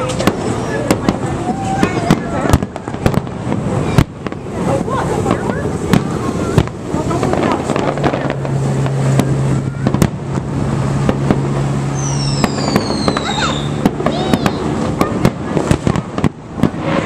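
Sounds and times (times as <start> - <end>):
fireworks bursting and crackling: 0.0 - 17.0
falling high whistle: 12.0 - 14.6.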